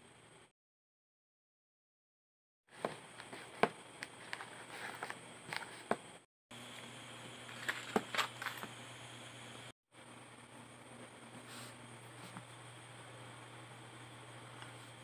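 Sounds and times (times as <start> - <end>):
paper pages rustling: 2.8 - 5.9, 7.5 - 8.7.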